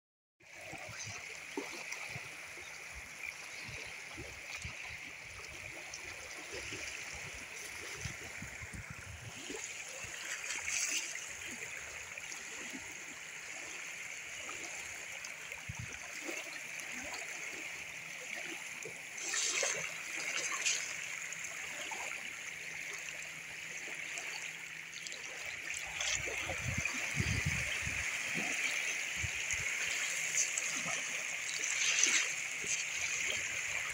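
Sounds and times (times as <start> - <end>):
stream gurgling over stones: 0.4 - 33.9
water splashes: 0.4 - 33.9
small waves lapping: 0.5 - 33.9.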